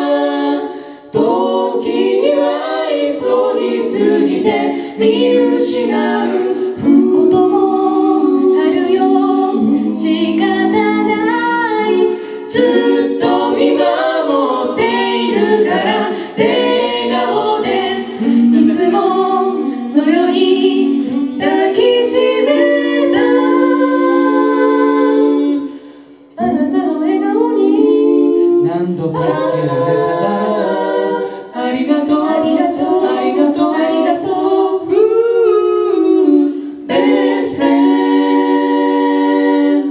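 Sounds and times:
a cappella vocal harmony: 0.0s - 39.9s.

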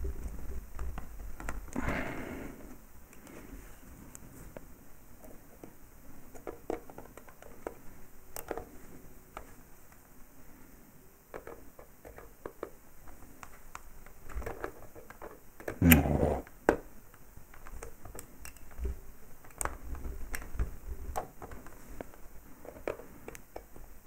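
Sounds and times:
small metallic clicks: 17.5s - 21.8s.

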